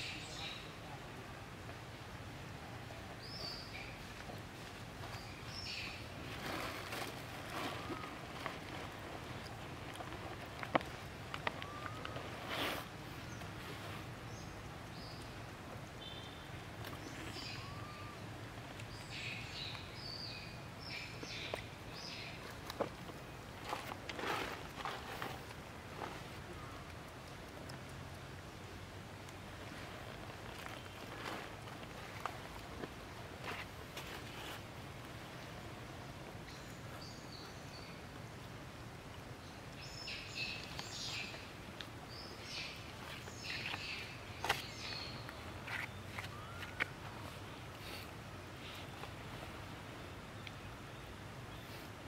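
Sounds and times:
outdoor background noise: 0.0 - 52.0
steady background noise: 0.0 - 52.0.

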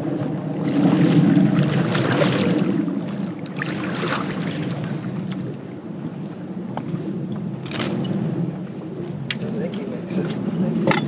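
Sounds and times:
boat motor rumble: 0.0 - 11.0
water and wind noise: 0.0 - 11.0.

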